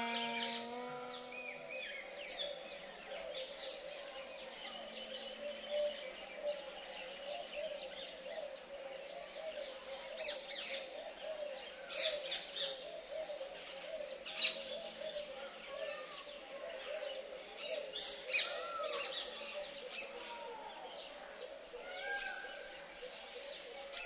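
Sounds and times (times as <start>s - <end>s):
chorus of lower bird calls: 0.0s - 2.0s.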